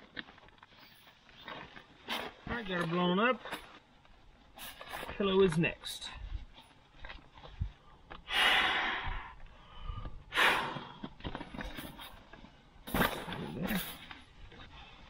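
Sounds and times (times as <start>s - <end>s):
person blowing into pillow valve: 8.3s - 9.4s, 10.3s - 11.0s.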